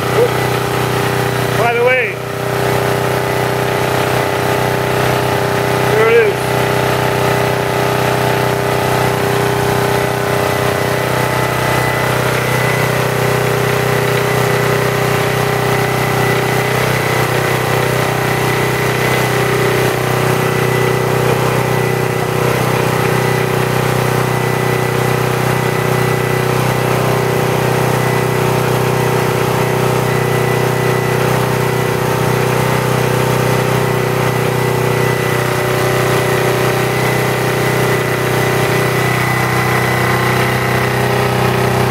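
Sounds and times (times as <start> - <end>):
engine running steadily: 0.0 - 41.9.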